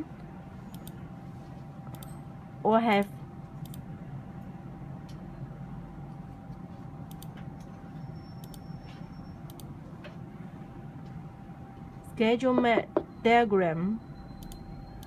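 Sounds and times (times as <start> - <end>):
computer mouse clicks: 0.7 - 1.0, 7.1 - 7.4, 9.5 - 9.7
faint steady tone: 12.8 - 15.0.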